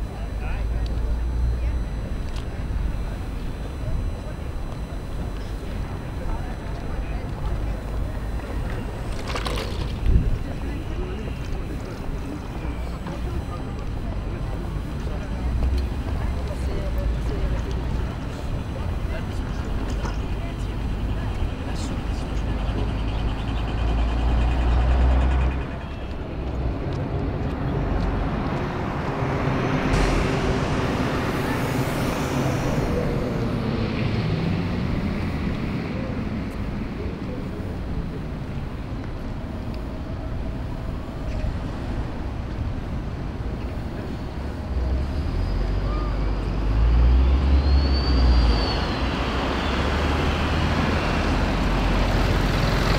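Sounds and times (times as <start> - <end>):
faint high whine: 0.0 - 24.7
heavy vehicle engine rumble: 0.0 - 52.9
traffic noise: 0.0 - 52.9
vehicles passing: 0.0 - 52.9.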